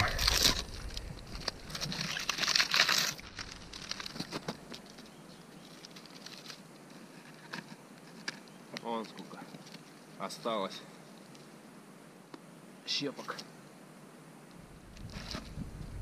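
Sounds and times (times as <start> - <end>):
bark crinkling and tearing: 0.0 - 10.2, 14.9 - 15.6
faint clicks and rustles: 0.0 - 11.6.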